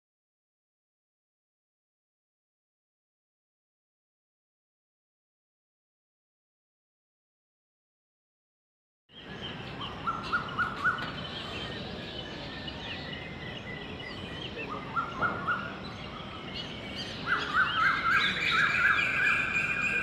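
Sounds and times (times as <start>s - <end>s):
birds chirping: 9.1s - 20.0s.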